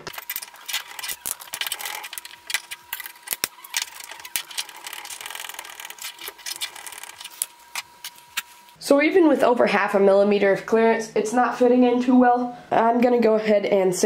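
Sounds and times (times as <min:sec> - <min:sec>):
plastic parts clicking and scraping: 0:00.0 - 0:08.5.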